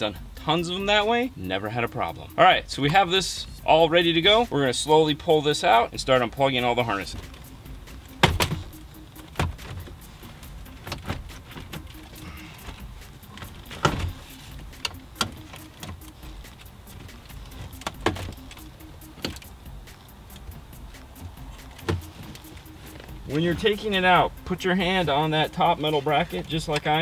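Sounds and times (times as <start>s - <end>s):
plastic and metal clicks and knocks: 12.6s - 19.5s.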